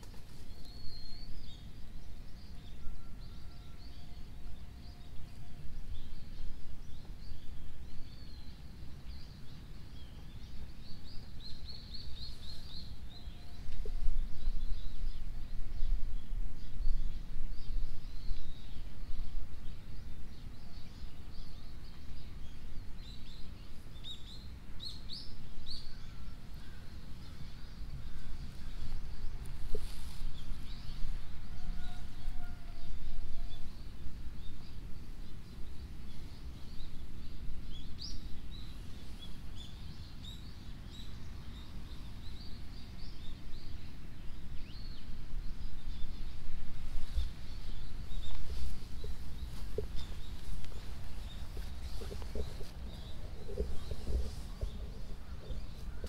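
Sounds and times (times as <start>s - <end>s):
small birds chirping: 0.0s - 56.0s
low outdoor rumble: 25.4s - 56.0s.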